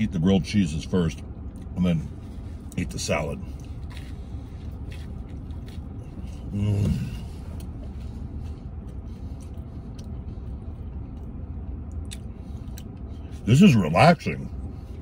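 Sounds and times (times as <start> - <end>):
low car cabin rumble: 0.0 - 15.0
man chewing food: 1.4 - 13.4
man humming: 6.5 - 7.3.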